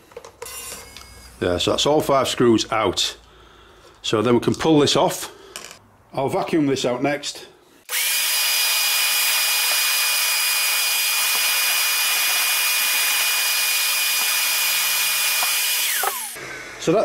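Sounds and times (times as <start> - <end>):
vacuum cleaner running: 7.9 - 16.9.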